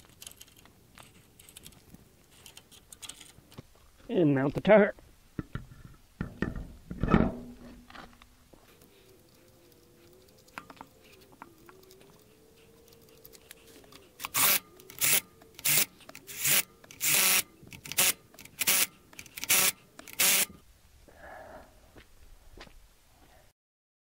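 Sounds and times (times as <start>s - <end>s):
cordless driver spinning nuts: 13.2s - 20.5s.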